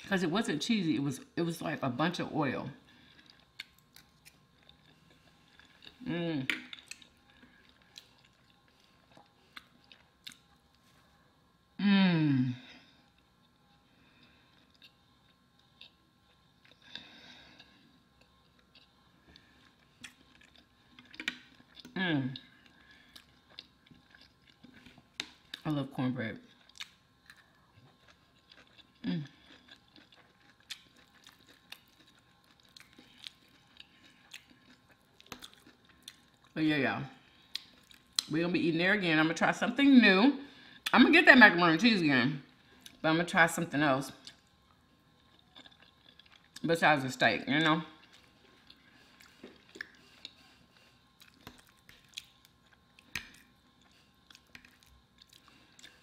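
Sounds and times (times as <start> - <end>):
chewing green beans: 2.8 - 11.0, 13.0 - 36.6, 37.2 - 38.3, 44.1 - 46.8, 47.4 - 56.0
person humming mmm: 11.8 - 12.6
mouth clicks and chewing: 26.5 - 36.4, 48.0 - 56.0.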